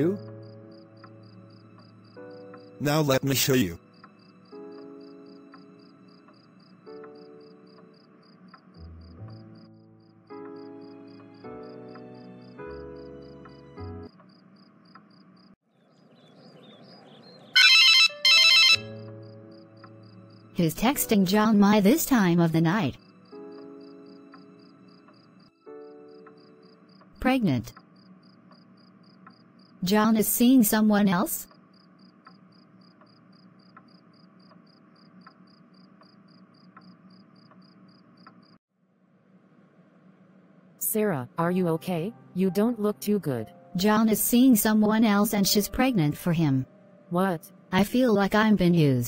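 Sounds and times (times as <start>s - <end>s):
soft background music: 0.0s - 15.5s, 16.1s - 37.5s, 40.1s - 49.0s
crickets chirping: 0.0s - 38.6s
phone message alert ringing: 17.6s - 19.0s.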